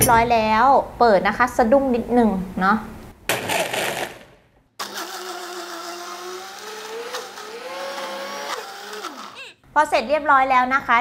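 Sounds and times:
blender motor whine: 4.8 - 9.6.

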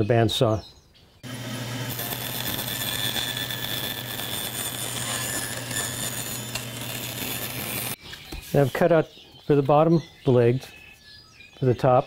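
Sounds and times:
bandsaw cutting plywood: 1.2 - 8.0.

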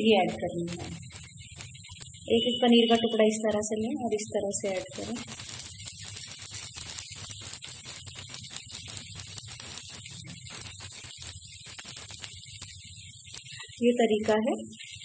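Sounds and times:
batter sizzling in oil: 0.0 - 15.0.

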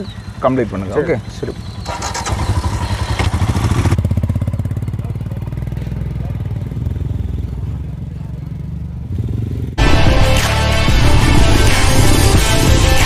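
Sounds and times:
single-cylinder engine running: 0.0 - 9.5.

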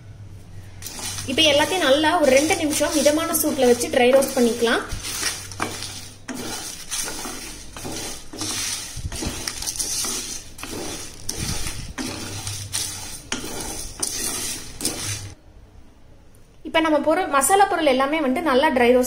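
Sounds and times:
spices rattling in a pan: 0.8 - 15.4.

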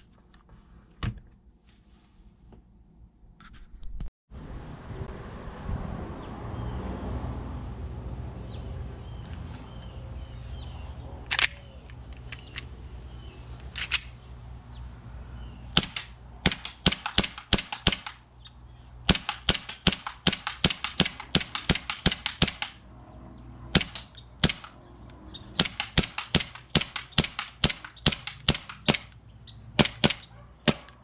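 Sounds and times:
airsoft pistol firing: 15.7 - 18.2, 19.0 - 22.8, 23.7 - 24.8, 25.6 - 29.2, 29.8 - 31.0.

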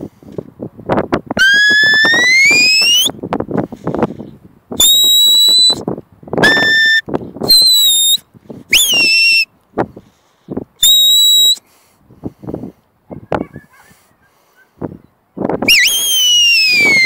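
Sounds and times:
shepherd's whistle blasts: 1.4 - 3.1, 4.8 - 5.8, 6.4 - 9.5, 10.8 - 11.6, 15.7 - 17.0.

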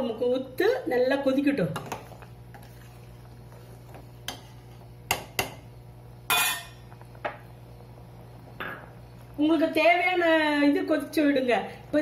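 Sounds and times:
steady low hum: 0.0 - 12.0
ladle clinking against metal pan: 6.3 - 6.8.

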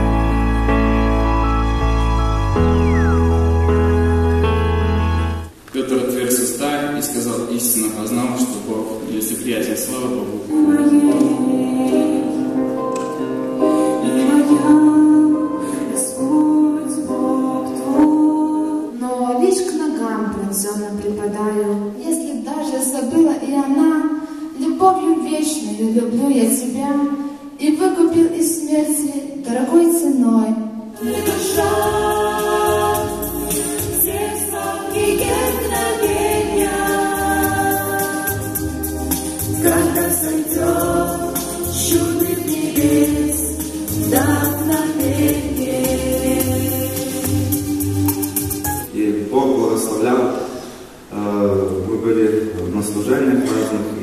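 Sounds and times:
vocal group singing in harmony: 10.4 - 12.8, 13.6 - 19.0, 30.9 - 48.9
woman singing into a microphone: 10.5 - 12.8, 13.9 - 20.4.

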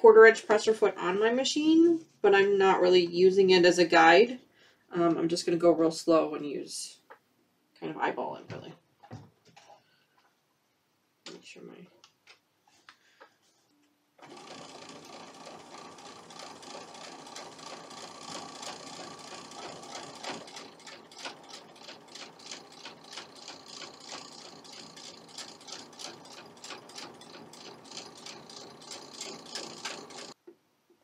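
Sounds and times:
sewing machine motor whining: 14.2 - 30.4.

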